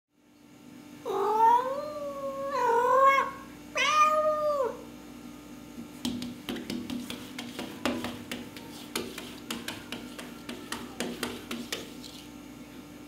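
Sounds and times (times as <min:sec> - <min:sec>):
cat meowing: 0:01.1 - 0:04.8.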